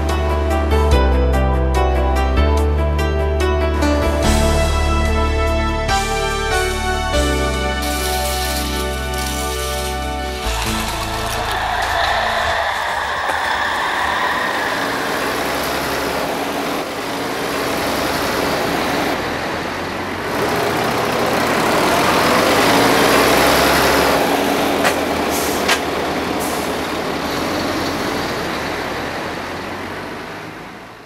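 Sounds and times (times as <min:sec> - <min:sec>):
truck engine and road rumble: 0:00.0 - 0:31.0.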